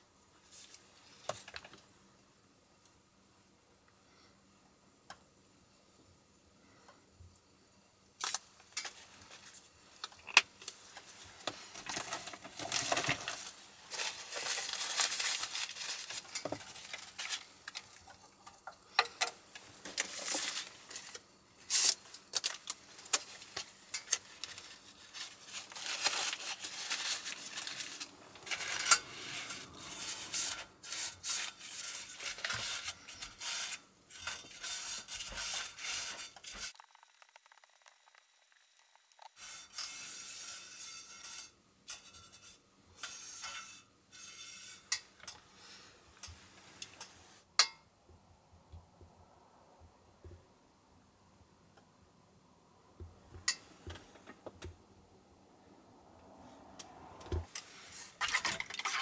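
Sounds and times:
utensil working in pan: 11.6 - 24.8, 25.6 - 45.3.

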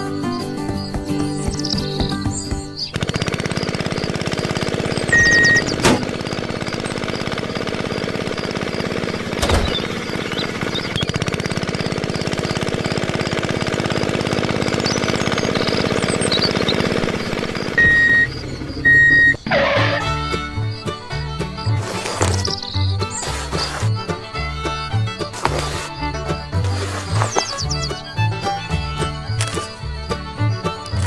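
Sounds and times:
tractor engine chugging: 0.0 - 31.0
sharp clicks: 29.4 - 29.8.

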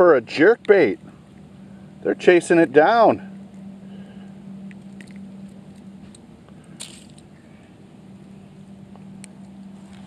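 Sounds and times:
steady low hum: 0.0 - 10.0
lure clicks and handling noise: 4.6 - 7.3.

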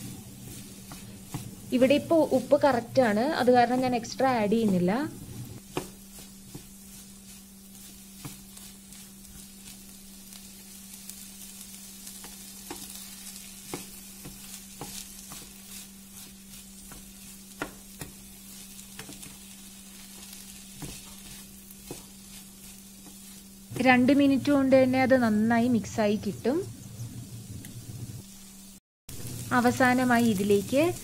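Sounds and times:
steady low hum: 0.0 - 12.8, 13.4 - 31.0
food sizzling in pan: 0.0 - 31.0
wooden spoon knocking pan: 16.8 - 18.2.

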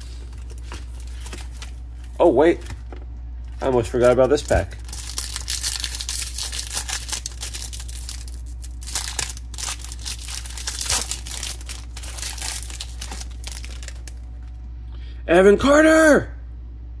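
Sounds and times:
foil wrapper tearing and crinkling: 3.7 - 14.2.

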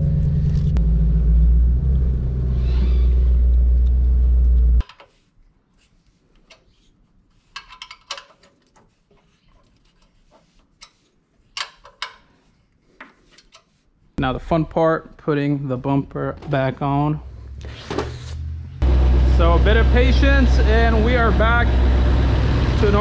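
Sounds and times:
car engine idling: 0.0 - 2.6, 18.4 - 23.0.

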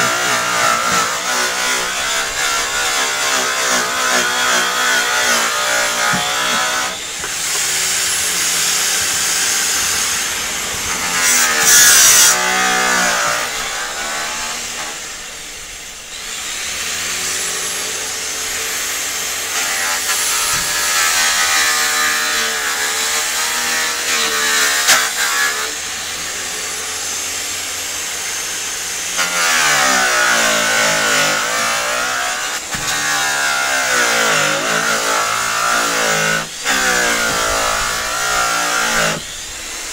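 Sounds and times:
electric polisher motor whine: 0.0 - 12.6, 36.4 - 39.9.

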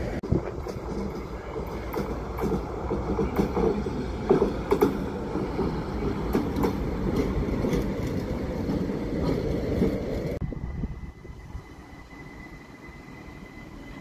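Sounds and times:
wheels clicking over rail joints: 0.2 - 10.4.

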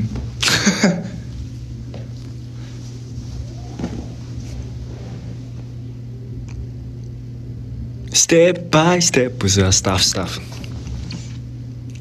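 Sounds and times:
steady low hum: 0.0 - 12.0
man laughing: 0.4 - 1.3.

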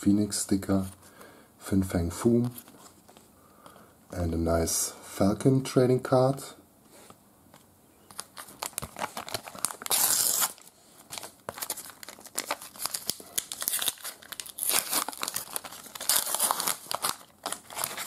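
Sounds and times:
wrapper crinkling: 8.1 - 18.0
paper packet tearing: 8.2 - 18.0.

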